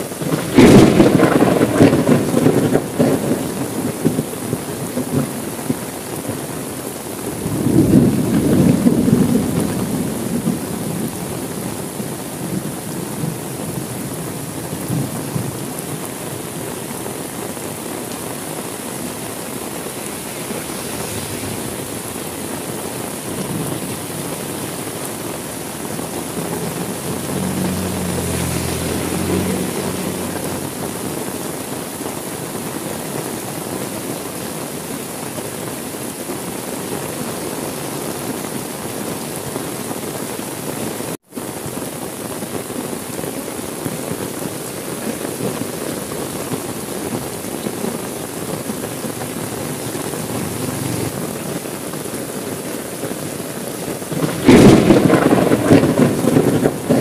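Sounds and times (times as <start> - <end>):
heavy rain: 0.0 - 57.0
thunder rumbling: 0.2 - 6.5, 7.3 - 32.6, 48.4 - 51.4, 54.1 - 57.0.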